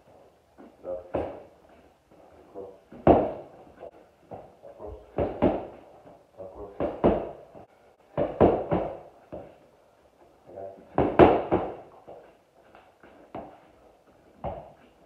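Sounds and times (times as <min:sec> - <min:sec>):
gloved strikes on pads: 0:03.0 - 0:03.4, 0:05.1 - 0:05.8, 0:06.8 - 0:07.4, 0:08.2 - 0:09.5, 0:10.9 - 0:11.8.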